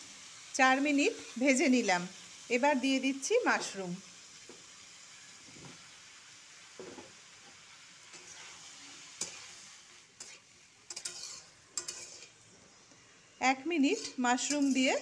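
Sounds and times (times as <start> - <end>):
vegetables sizzling in oil: 0.0 - 15.0
spatula scraping a pan: 8.1 - 12.8, 13.8 - 15.0.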